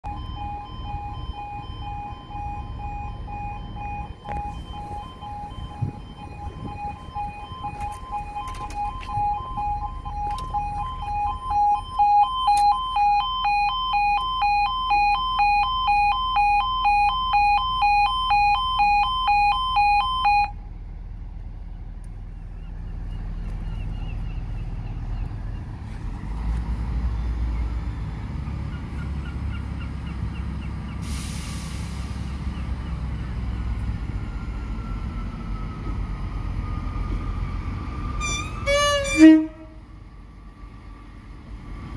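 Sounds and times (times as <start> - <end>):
two-tone crossing alarm pulsing: 0.0 - 20.6, 34.1 - 39.8.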